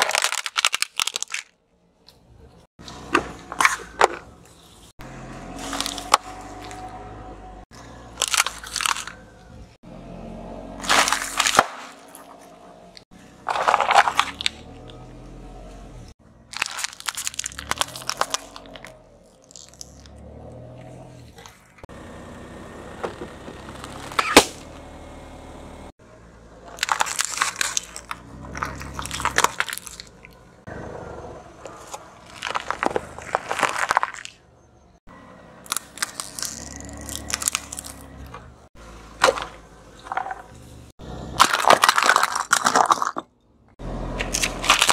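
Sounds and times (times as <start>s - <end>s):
tyre crushing plastic on asphalt: 2.8s - 6.9s, 10.8s - 12.5s, 13.4s - 15.0s, 16.5s - 20.1s, 23.0s - 24.8s, 26.7s - 30.4s, 31.6s - 34.4s, 35.6s - 40.6s, 41.3s - 43.2s, 44.2s - 44.9s.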